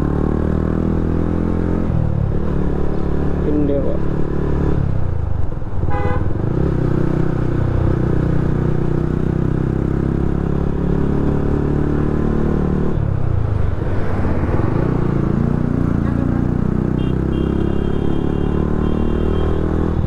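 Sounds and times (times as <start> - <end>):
short horn beep: 16.9 - 19.6.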